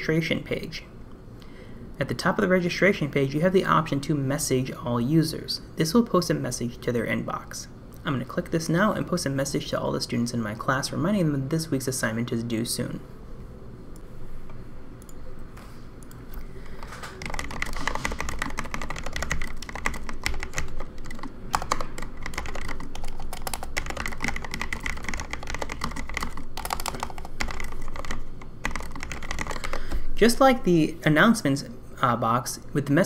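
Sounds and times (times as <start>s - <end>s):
typing on computer keyboard: 16.0s - 30.0s.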